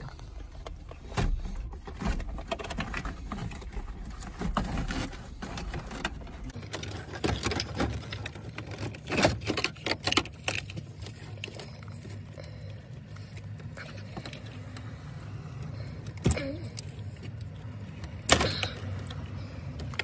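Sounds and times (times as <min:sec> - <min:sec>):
fiddling with wires: 0:00.0 - 0:20.0.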